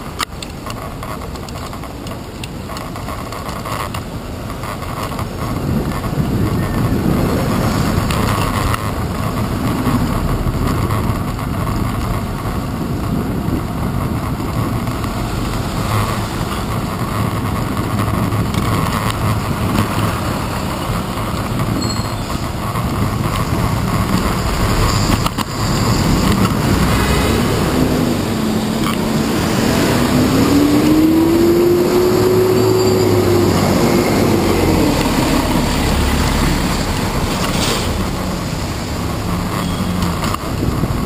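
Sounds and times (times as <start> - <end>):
road and traffic rumble: 0.0 - 41.0
bus engine accelerating: 19.4 - 39.8.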